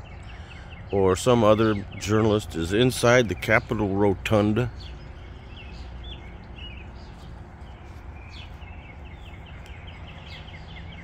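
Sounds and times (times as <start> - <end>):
small birds chirping: 0.0 - 11.0
steady low rumble: 1.7 - 11.0.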